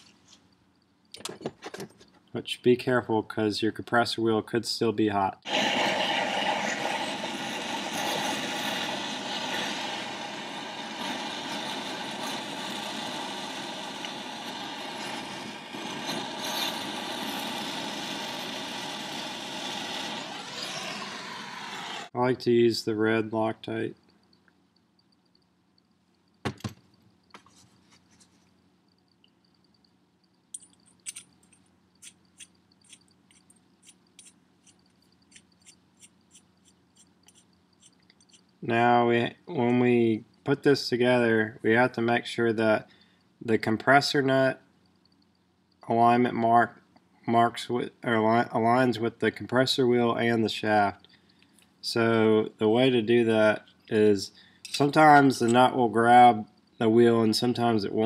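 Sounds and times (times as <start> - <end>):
gas torch hissing flame: 5.4 - 22.1.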